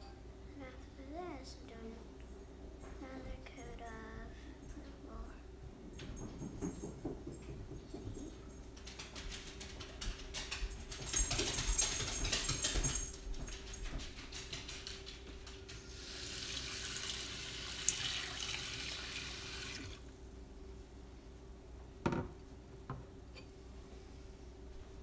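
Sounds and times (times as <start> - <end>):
water running from tap: 15.9 - 20.1.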